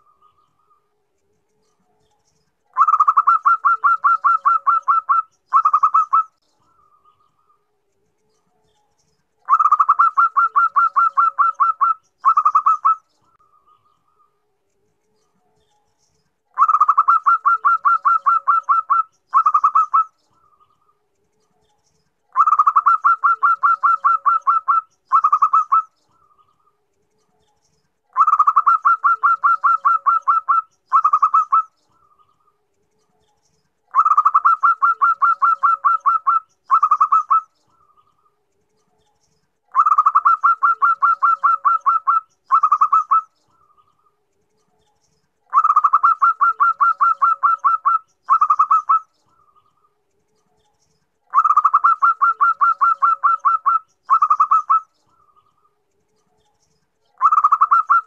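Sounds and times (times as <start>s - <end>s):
dove cooing: 2.7s - 7.0s, 9.4s - 13.0s, 16.5s - 20.5s, 22.3s - 26.3s, 28.1s - 32.2s, 33.9s - 38.0s, 39.7s - 43.3s, 45.5s - 49.6s, 51.3s - 55.3s, 57.2s - 58.0s.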